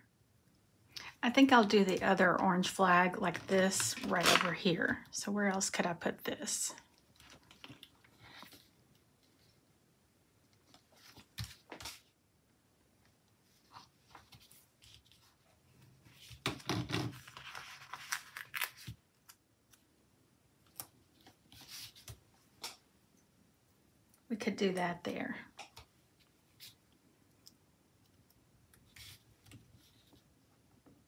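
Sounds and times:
paper rustling and sliding: 17.1s - 19.0s.

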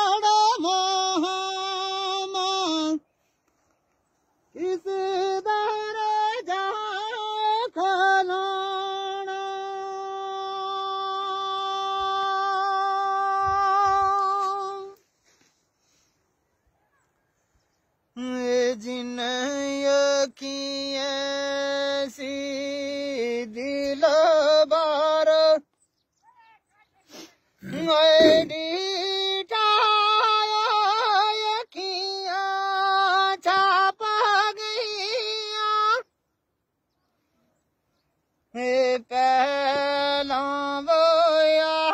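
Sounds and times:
man singing unaccompanied: 0.0s - 3.2s, 4.4s - 15.1s, 18.1s - 25.8s, 27.6s - 36.2s, 38.4s - 41.9s
person singing long note: 4.6s - 15.0s, 27.6s - 29.2s.

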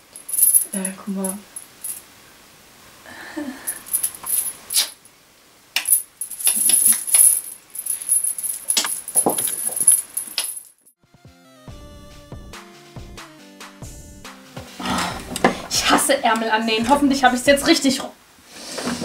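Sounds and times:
metal chain rattling: 0.0s - 2.0s, 3.7s - 5.0s, 5.8s - 10.9s
music: 11.0s - 15.9s.

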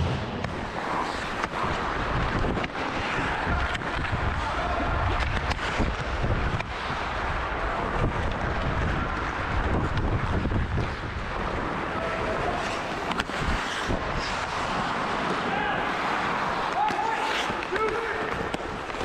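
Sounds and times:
skate blades scraping ice: 0.0s - 19.0s
wind rumbling on microphone: 1.6s - 12.6s.

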